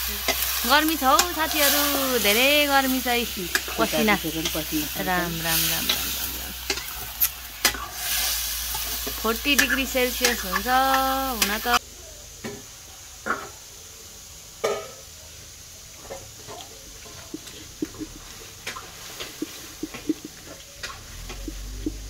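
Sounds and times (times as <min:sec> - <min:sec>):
tomato squishing by hand: 0:16.5 - 0:22.0
wet knocks and squelches: 0:17.2 - 0:22.0
stone pestle crushing tomato: 0:19.2 - 0:22.0.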